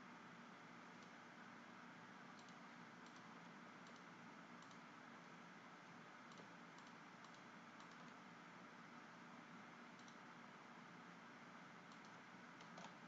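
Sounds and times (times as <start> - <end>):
computer mouse and keyboard clicks: 2.3 - 4.9, 6.2 - 8.2, 10.0 - 10.3, 11.8 - 13.0.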